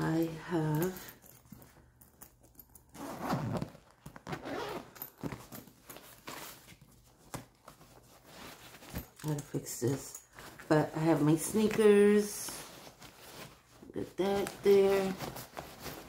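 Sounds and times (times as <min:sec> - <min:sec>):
fabric rustling: 0:00.2 - 0:16.0
zipper being pulled open: 0:02.9 - 0:05.6.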